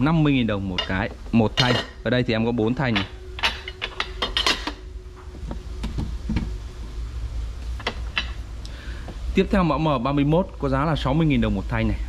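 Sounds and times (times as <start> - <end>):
steady low hum: 0.0 - 12.0
aluminium bars clinking: 0.7 - 4.8.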